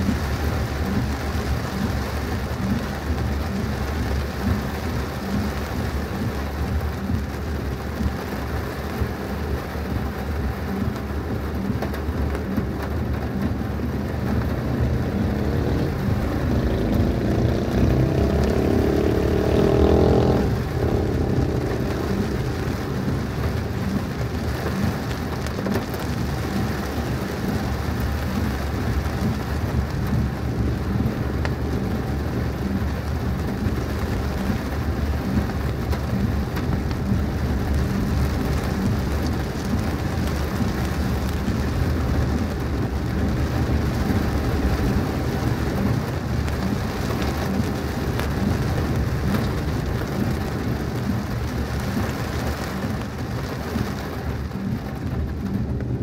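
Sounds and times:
heavy rain drumming on car: 0.0s - 56.0s
vehicle engine rising in pitch: 14.0s - 24.2s.

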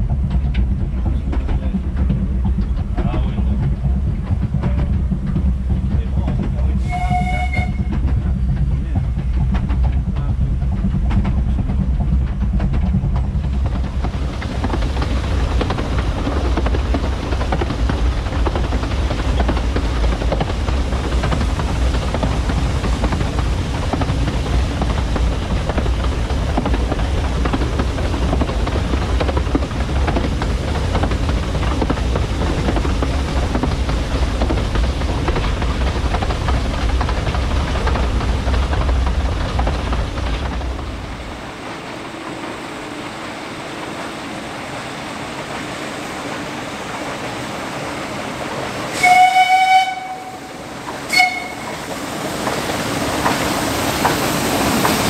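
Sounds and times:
train rumbling: 0.0s - 55.0s
steam whistle blast: 6.8s - 8.0s, 48.9s - 50.5s, 51.1s - 51.8s.

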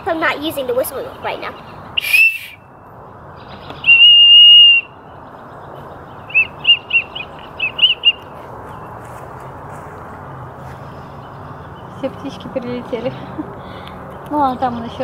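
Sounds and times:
toy whistle shrill note: 2.0s - 2.6s, 3.9s - 4.9s
whistle chirping toots: 2.0s - 2.7s, 3.8s - 5.0s, 6.3s - 8.2s.

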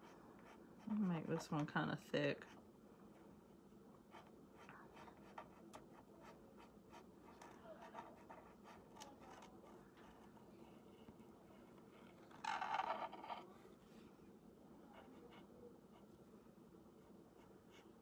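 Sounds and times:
paint pen scratching on wood: 0.0s - 1.6s, 4.1s - 13.4s, 14.9s - 16.1s.

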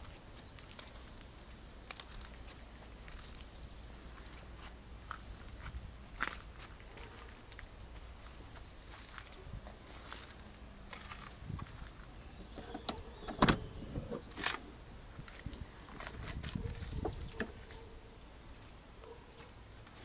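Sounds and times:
footsteps on brick paving: 4.1s - 12.1s.

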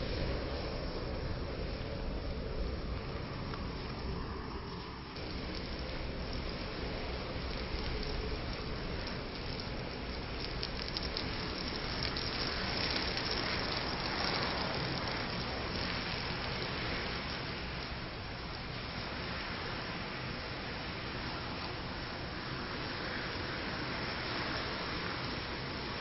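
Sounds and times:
matches burning with crackling: 5.2s - 19.0s.

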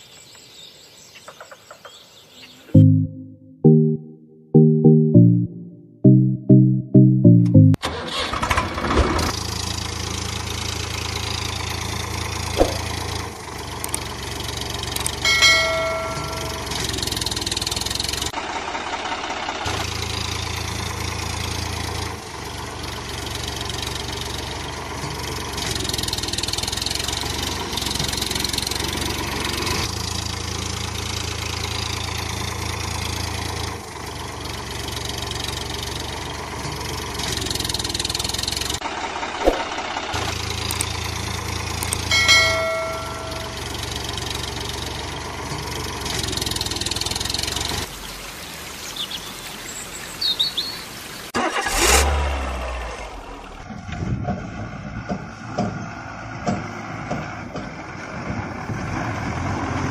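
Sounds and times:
tractor engine idling: 7.3s - 47.9s, 51.4s - 59.9s
brief ringing tone: 42.1s - 43.7s.

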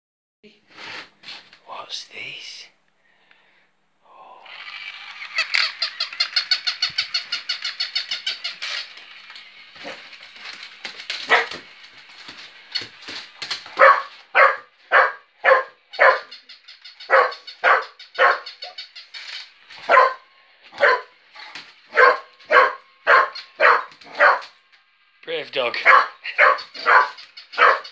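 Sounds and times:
toy puppy electronic yaps: 4.6s - 8.9s, 13.8s - 19.0s, 25.8s - 27.9s
dog barking: 11.3s - 11.6s, 13.8s - 16.4s, 17.1s - 18.8s, 19.9s - 21.1s, 21.9s - 24.5s, 25.8s - 27.9s.

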